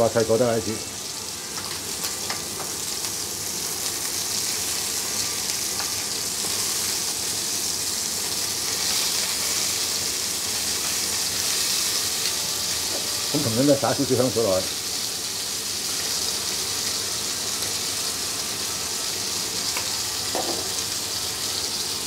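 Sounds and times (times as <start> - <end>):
meat sizzling in oil: 0.0 - 22.0.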